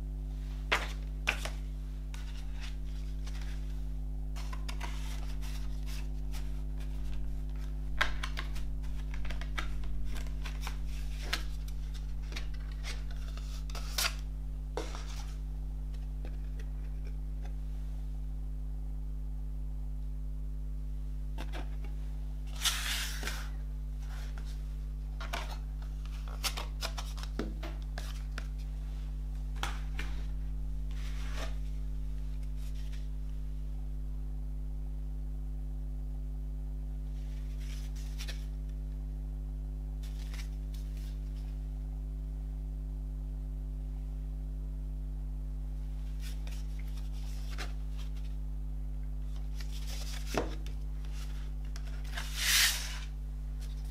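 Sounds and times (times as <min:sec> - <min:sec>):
steady low hum: 0:00.0 - 0:53.9
card and paper rustling: 0:00.6 - 0:03.8, 0:04.4 - 0:17.6, 0:21.4 - 0:24.6, 0:25.2 - 0:28.7, 0:29.3 - 0:33.1, 0:37.2 - 0:38.6, 0:40.0 - 0:41.5, 0:46.1 - 0:48.4, 0:49.2 - 0:53.9.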